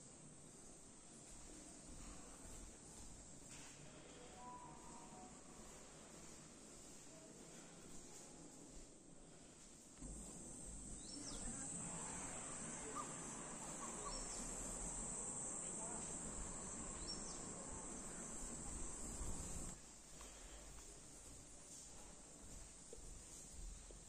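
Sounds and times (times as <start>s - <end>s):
faint low rumble: 10.0s - 22.2s
crickets trilling: 10.1s - 19.8s.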